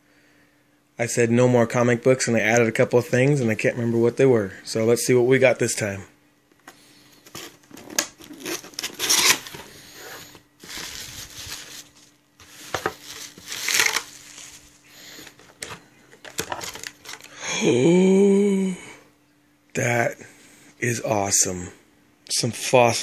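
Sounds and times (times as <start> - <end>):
bubble wrap and paper rustling: 7.1 - 17.3.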